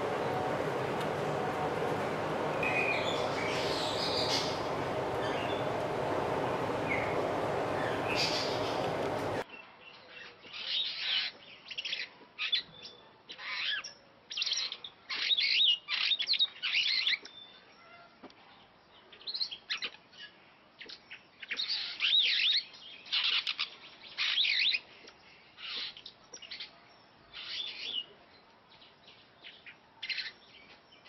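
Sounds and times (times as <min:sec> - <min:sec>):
starling singing: 0:00.0 - 0:09.4.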